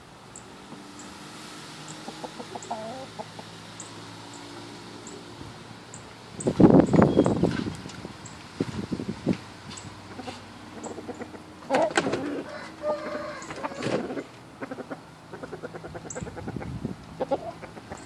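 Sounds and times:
rooster clucking: 1.8 - 3.7, 10.0 - 18.0.

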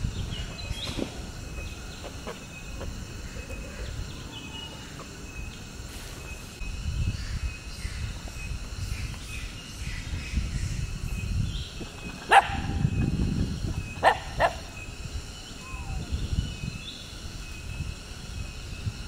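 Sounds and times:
dog barks: 12.3 - 12.8, 14.0 - 14.7.

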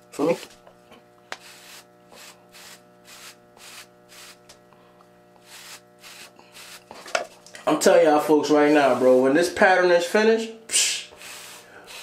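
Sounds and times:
low electrical hum: 0.0 - 12.0
brush swishing through hair: 1.4 - 4.4, 5.4 - 7.0, 8.4 - 9.5.

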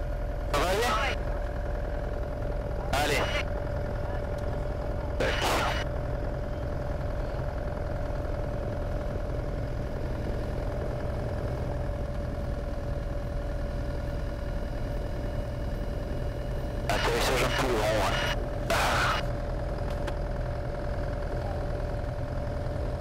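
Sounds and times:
airplane engine drone in cabin: 0.0 - 23.0.

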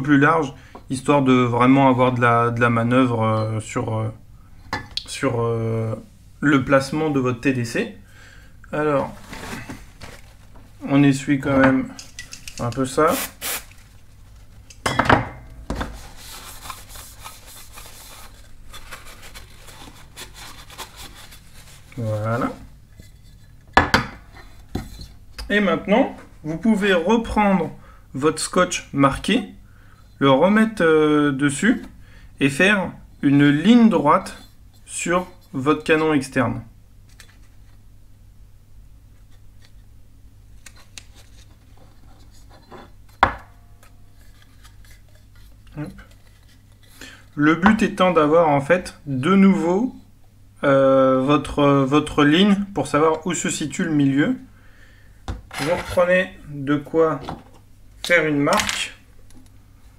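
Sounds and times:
masking tape rustling: 11.9 - 14.7, 15.8 - 23.6
paper towel rubbing metal: 16.0 - 22.6.

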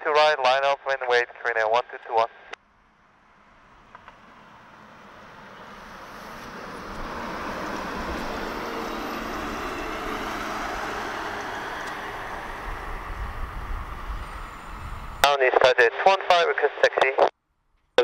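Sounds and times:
jet engines rumble and hiss: 4.0 - 15.7.

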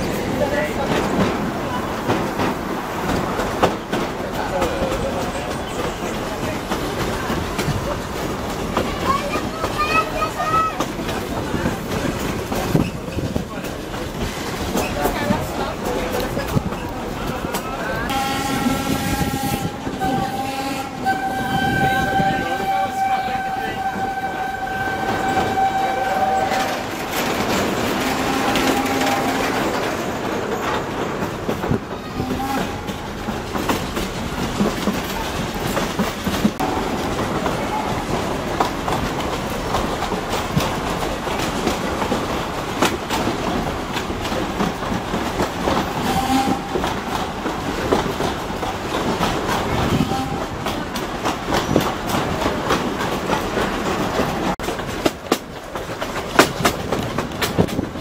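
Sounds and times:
train wheels clicking over rail joints: 0.0 - 22.3, 23.8 - 58.0
steam locomotive whistle: 18.1 - 26.9, 46.0 - 46.7.

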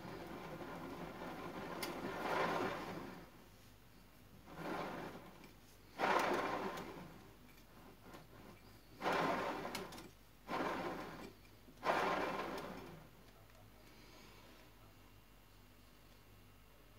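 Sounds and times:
bicycle crankset whirring: 4.6 - 7.1, 8.1 - 13.0.

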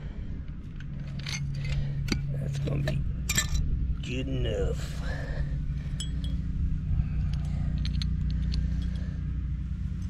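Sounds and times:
steady low hum: 0.0 - 10.0
pipe fittings and tools clinking: 0.8 - 3.7, 5.9 - 6.4.

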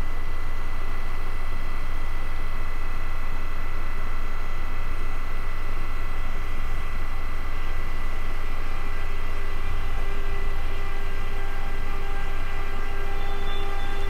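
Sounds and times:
thin whining tones: 9.6 - 14.0.

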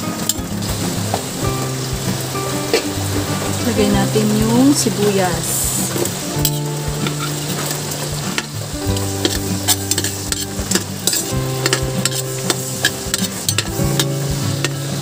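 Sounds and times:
onions sizzling in a pot: 0.0 - 15.0
sustained musical tones: 0.0 - 15.0
metal spatula scraping a pot: 9.2 - 14.8.

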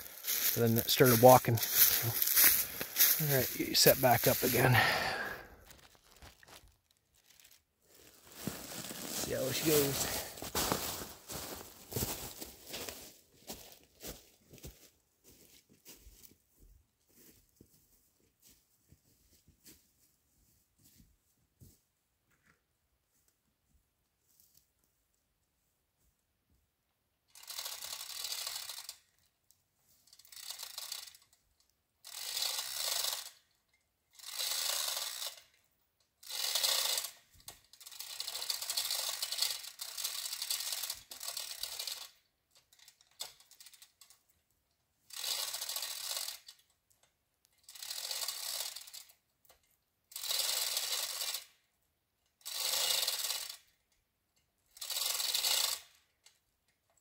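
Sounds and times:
chain hoist ratcheting: 27.3 - 29.2, 30.0 - 31.4, 32.0 - 44.4, 45.1 - 53.9, 54.7 - 57.0.

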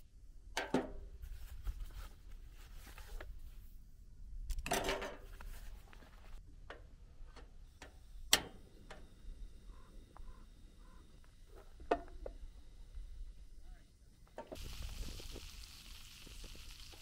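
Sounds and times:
gas hissing: 7.6 - 17.0.

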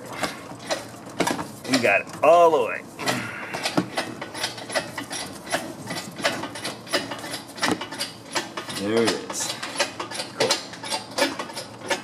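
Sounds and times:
metallic clicks and clanks: 3.1 - 12.0.

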